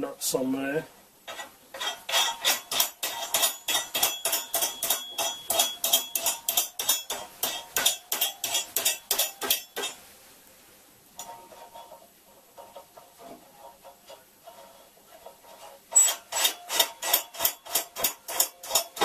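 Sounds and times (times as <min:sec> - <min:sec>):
spanner clicking on nut: 0:01.8 - 0:09.9.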